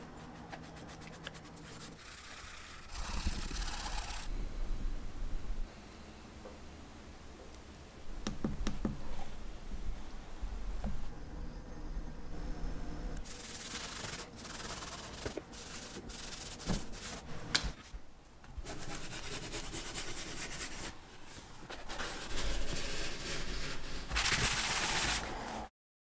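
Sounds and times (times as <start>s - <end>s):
paper towel rubbing leather: 0.4s - 4.3s, 13.2s - 17.2s, 21.8s - 25.3s.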